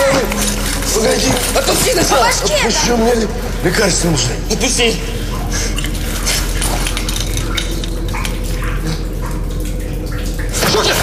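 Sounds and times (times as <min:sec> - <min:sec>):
steady low hum: 0:00.0 - 0:10.8
scrapes and clinks on floor: 0:05.8 - 0:07.9.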